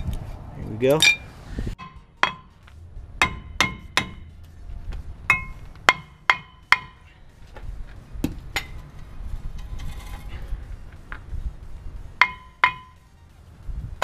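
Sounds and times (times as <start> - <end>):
tool striking steel brake rotor: 1.0 - 4.4, 5.3 - 7.2, 12.2 - 13.1.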